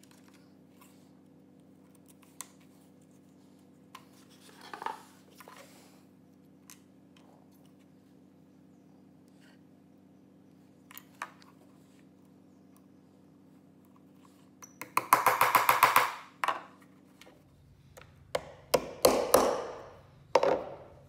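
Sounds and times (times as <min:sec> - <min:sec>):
small hammer tapping metal pins: 0:14.6 - 0:16.6.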